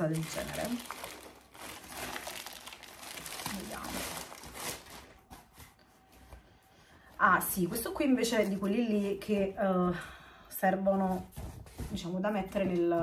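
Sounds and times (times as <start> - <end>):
packaging rustling and crackling: 0.0 - 5.8.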